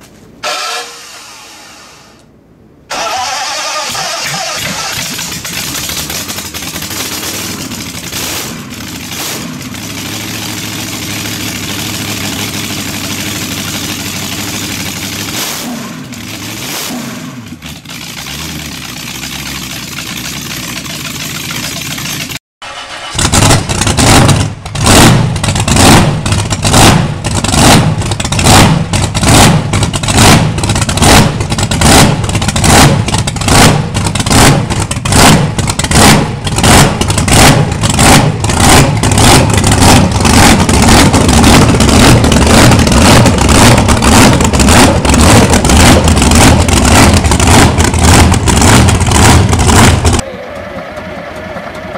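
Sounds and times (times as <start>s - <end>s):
supercharged racing engine revving: 2.9s - 19.8s, 22.7s - 50.2s
engine on run stand pulsing: 2.9s - 51.9s.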